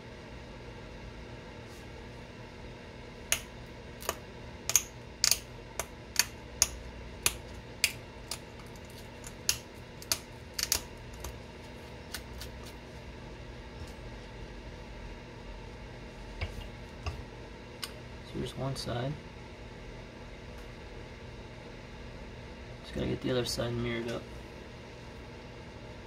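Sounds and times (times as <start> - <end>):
stone flakes snapping: 6.2 - 11.4.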